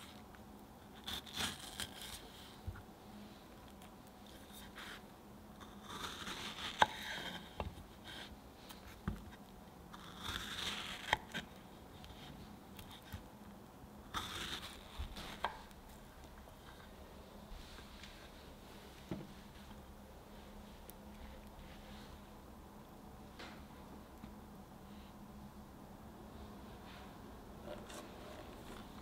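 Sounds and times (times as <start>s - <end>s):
knife slicing strawberries: 5.6s - 13.2s, 14.1s - 16.3s.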